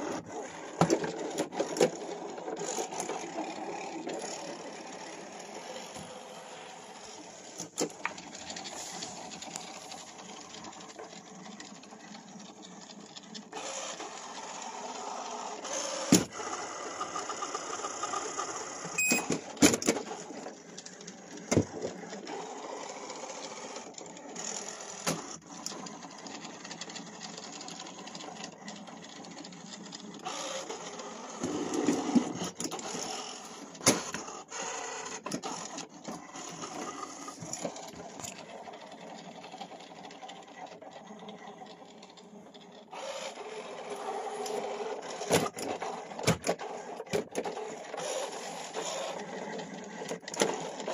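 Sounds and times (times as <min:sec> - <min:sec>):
robot vacuum motor humming: 0:25.8 - 0:50.9.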